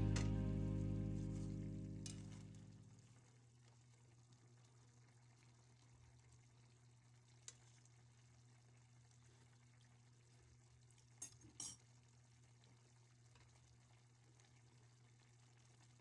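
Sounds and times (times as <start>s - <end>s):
low steady hum: 0.0s - 3.2s
metal spoon clinking on pan: 11.2s - 11.8s.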